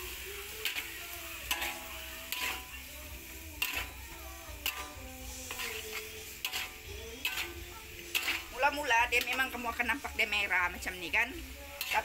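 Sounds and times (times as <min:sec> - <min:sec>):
faint sizzle: 0:00.0 - 0:12.0
spatula scraping metal wok: 0:00.2 - 0:12.0.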